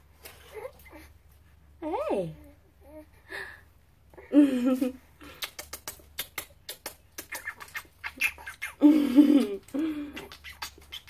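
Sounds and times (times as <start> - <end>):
kiss smacks: 5.2 - 8.8.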